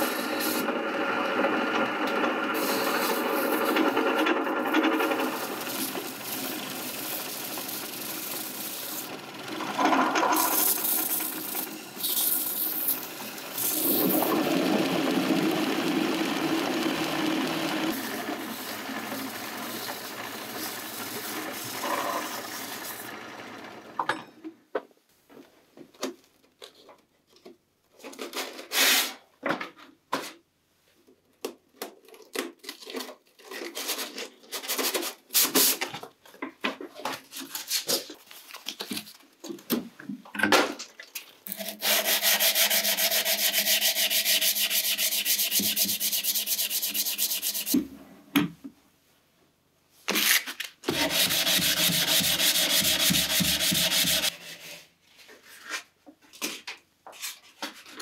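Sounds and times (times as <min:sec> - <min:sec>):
belt sander grinding metal: 0:00.0 - 0:24.0, 0:41.5 - 0:47.8, 0:50.9 - 0:54.4
sandpaper rustling and clicking: 0:41.6 - 0:47.8, 0:50.1 - 0:54.3.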